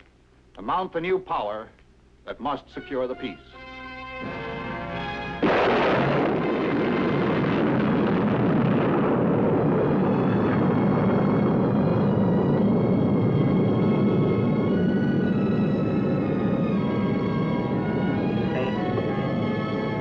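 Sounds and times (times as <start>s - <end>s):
film score music: 2.3s - 20.0s
rocket launch roar: 5.4s - 20.0s.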